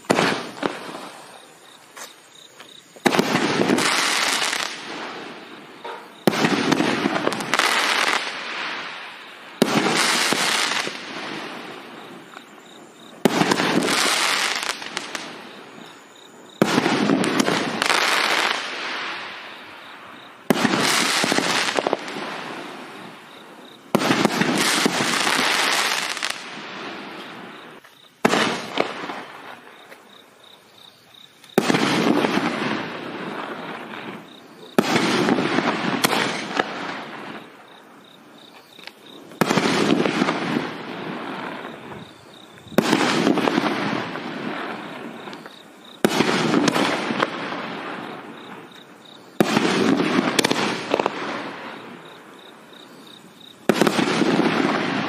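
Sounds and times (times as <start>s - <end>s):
firework bangs with hiss: 0.0s - 30.1s, 31.4s - 55.0s.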